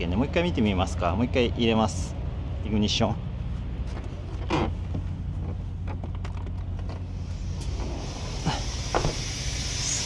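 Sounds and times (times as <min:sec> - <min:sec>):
truck diesel engine rumbling: 0:00.0 - 0:10.0
compressed air hissing: 0:07.0 - 0:10.0.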